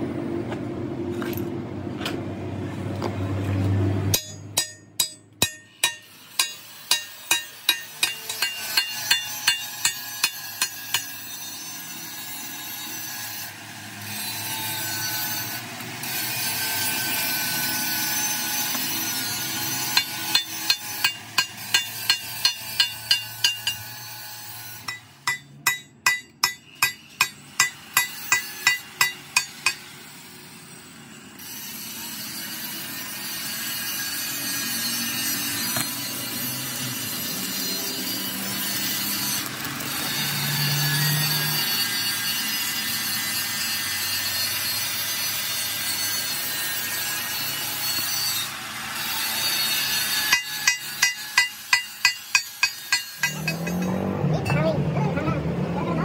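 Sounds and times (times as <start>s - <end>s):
hammer striking metal: 4.1s - 11.3s, 18.3s - 24.1s, 24.8s - 29.9s, 35.6s - 36.4s, 49.6s - 54.7s.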